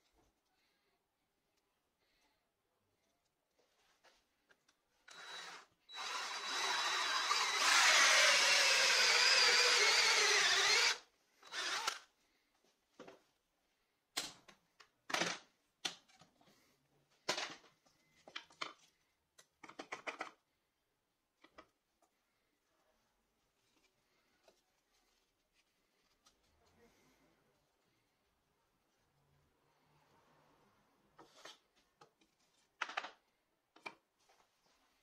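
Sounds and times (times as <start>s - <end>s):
cordless drill cutting plywood: 5.1s - 12.0s.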